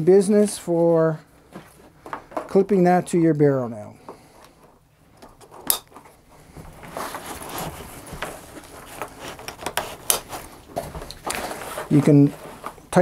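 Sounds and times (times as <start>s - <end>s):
nylon webbing and fabric rustling: 4.3s - 13.0s.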